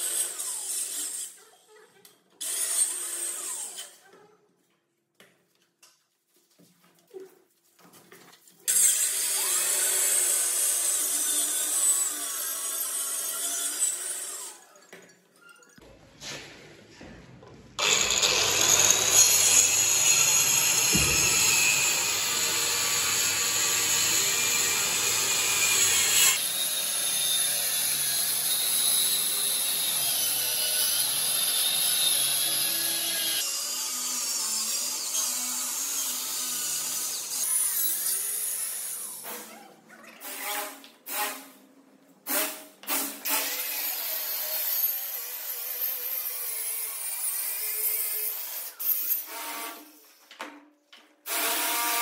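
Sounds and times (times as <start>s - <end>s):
circular saw cutting plywood: 17.8s - 39.5s.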